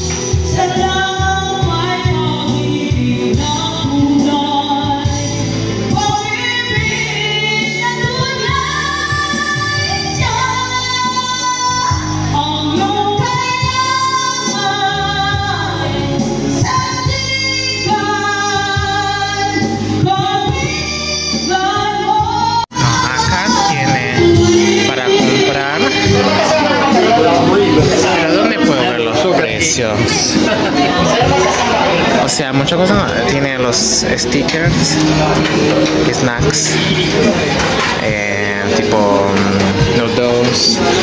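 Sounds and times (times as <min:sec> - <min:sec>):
woman singing with band: 0:00.3 - 0:29.0.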